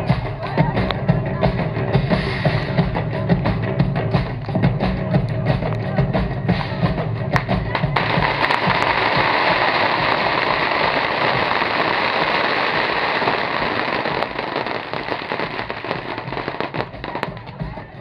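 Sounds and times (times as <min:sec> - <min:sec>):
pyrotechnic sparks hissing crackle: 0:08.0 - 0:17.6.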